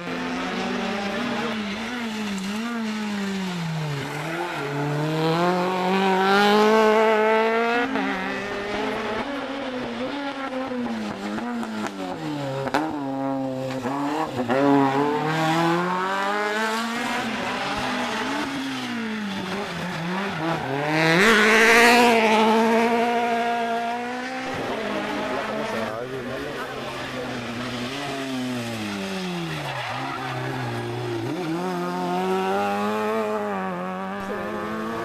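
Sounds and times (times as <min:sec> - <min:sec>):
rally car engines revving: 0:00.0 - 0:35.0
tyre squeal: 0:27.4 - 0:31.6.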